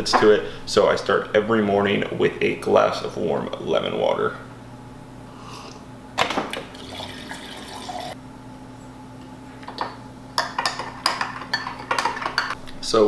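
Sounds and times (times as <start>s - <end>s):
water pouring into a glass: 6.7s - 8.2s.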